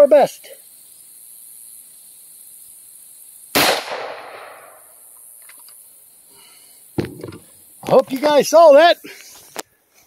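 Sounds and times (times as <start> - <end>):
rifle shot echoing: 3.5 - 4.8.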